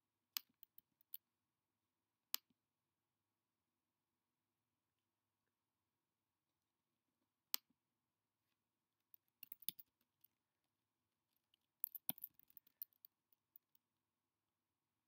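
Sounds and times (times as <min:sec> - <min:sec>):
keyboard typing: 0:09.4 - 0:09.8, 0:11.8 - 0:13.1.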